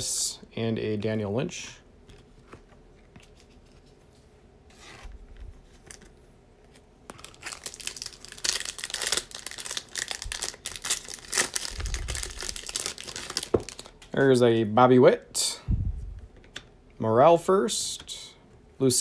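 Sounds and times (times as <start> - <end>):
foil wrapper crinkling and tearing: 7.1 - 14.0.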